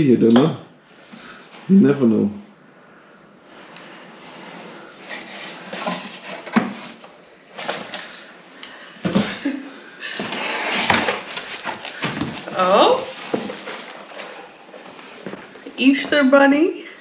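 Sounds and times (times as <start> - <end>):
plastic packing rustling: 5.0 - 8.4, 9.0 - 16.2.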